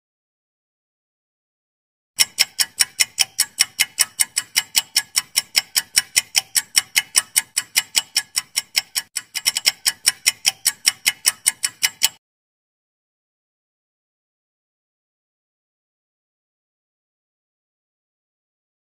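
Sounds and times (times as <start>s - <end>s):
fast clock-like ticking: 2.2s - 12.2s.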